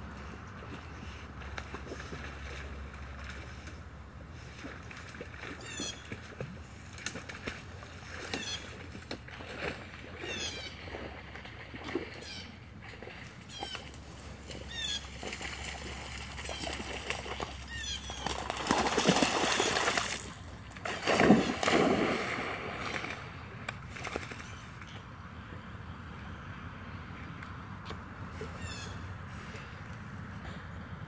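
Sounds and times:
water sloshing as dogs swim: 0.0s - 25.7s
dogs splashing into water: 4.4s - 24.5s.

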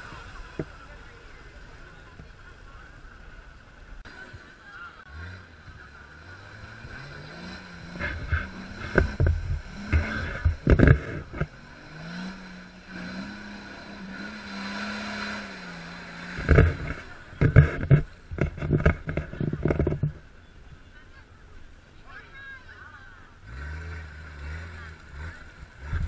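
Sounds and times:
engine running hard: 0.0s - 20.4s, 22.5s - 26.0s
wheels churning mud: 0.0s - 26.0s
loud thumps: 7.9s - 11.6s.

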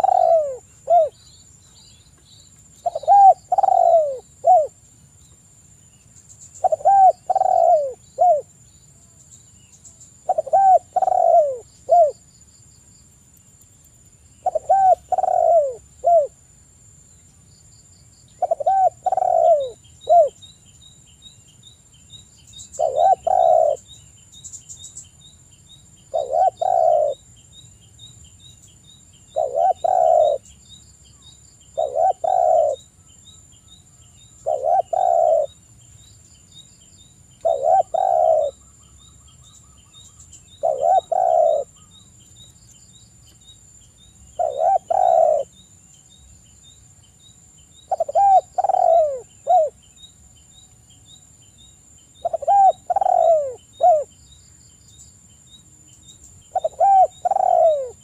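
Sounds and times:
dove cooing: 0.0s - 1.2s, 2.8s - 4.8s, 6.6s - 8.5s, 10.2s - 12.2s, 14.4s - 16.4s, 18.4s - 20.4s, 22.8s - 23.9s, 26.1s - 27.2s, 29.3s - 30.5s, 31.8s - 32.9s, 34.4s - 35.6s, 37.4s - 38.6s, 40.5s - 41.9s, 44.4s - 45.5s, 47.9s - 49.8s, 52.2s - 54.1s, 56.5s - 58.0s.

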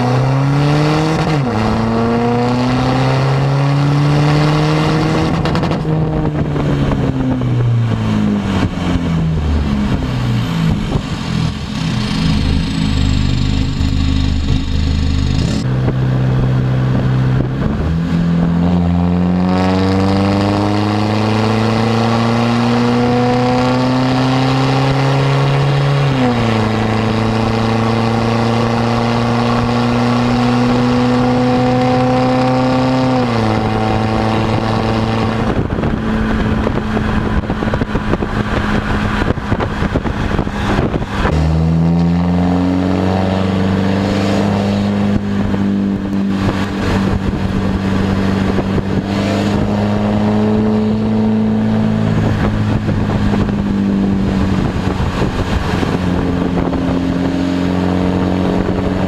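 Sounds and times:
diesel car engine accelerating: 0.0s - 59.0s
rushing noise: 7.5s - 15.7s.

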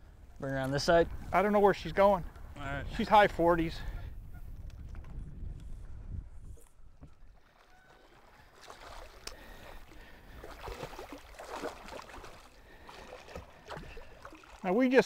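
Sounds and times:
fish splashing in water: 7.4s - 14.8s.

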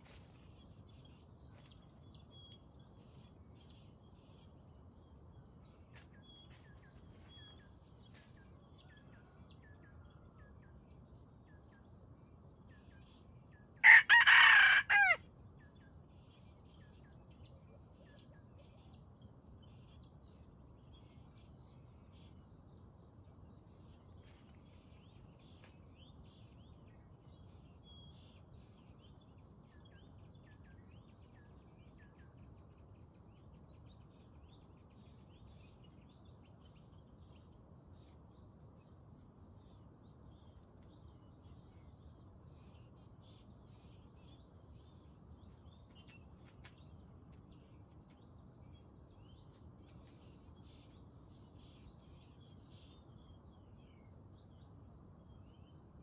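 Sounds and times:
rooster crowing: 13.8s - 15.2s.

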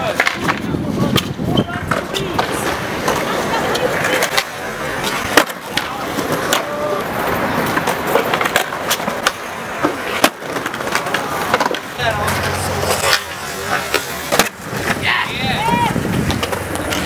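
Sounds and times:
skateboard wheels rolling on concrete: 0.0s - 17.0s
skateboards clacking: 0.0s - 17.0s.

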